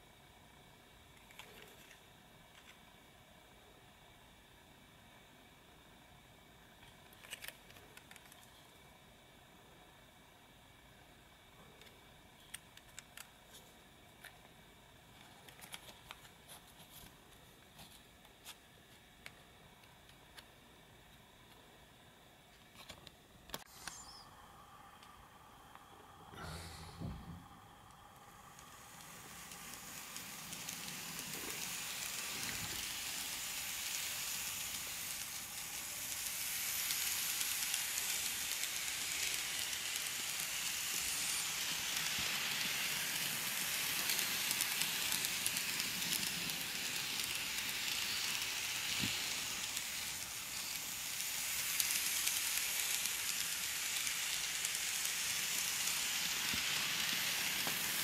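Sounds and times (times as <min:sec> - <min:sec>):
model train whirring: 0:27.8 - 0:58.0.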